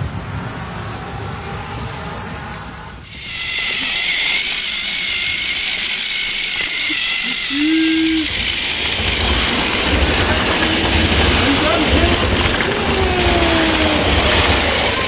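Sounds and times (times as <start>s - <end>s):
toy train motor whirring: 3.0s - 15.0s.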